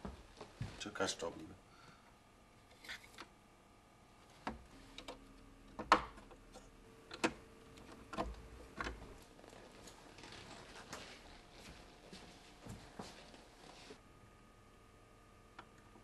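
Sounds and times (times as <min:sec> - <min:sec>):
soft rustle: 0:09.2 - 0:14.0.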